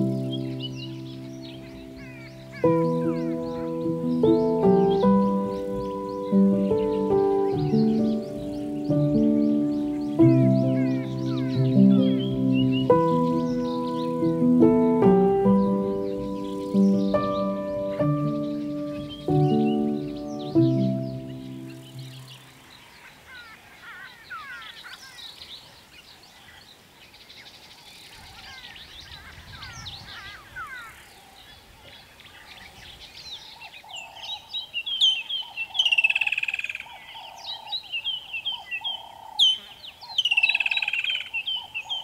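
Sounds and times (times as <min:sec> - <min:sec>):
low repeating bird note: 0:00.0 - 0:22.6
sharp sweeping bird calls: 0:00.0 - 0:42.0
thin bird twittering: 0:00.0 - 0:42.0.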